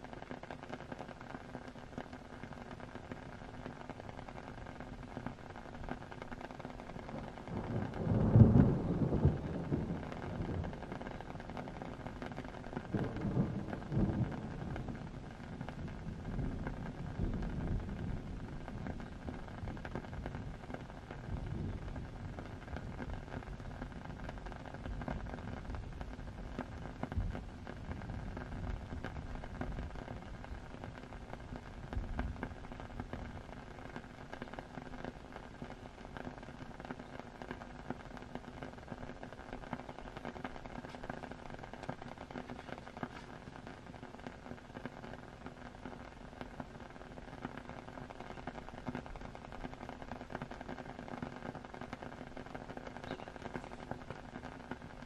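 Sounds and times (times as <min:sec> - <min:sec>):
steady rain: 0:00.0 - 0:55.0
thunder rumbling: 0:06.9 - 0:33.5.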